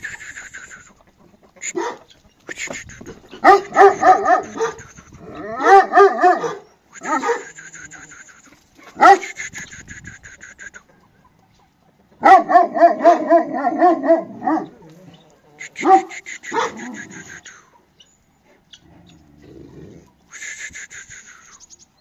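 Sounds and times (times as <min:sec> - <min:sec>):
dog yipping barks: 0:01.6 - 0:02.1, 0:03.4 - 0:07.6, 0:08.9 - 0:09.4, 0:12.2 - 0:14.8, 0:15.8 - 0:17.1.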